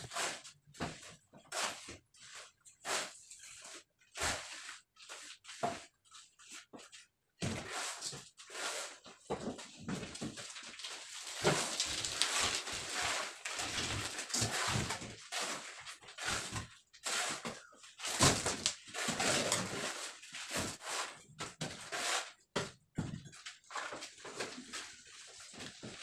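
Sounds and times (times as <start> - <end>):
shovel scraping wet concrete: 0.1 - 0.4, 7.6 - 9.0, 11.0 - 21.2, 21.8 - 22.3.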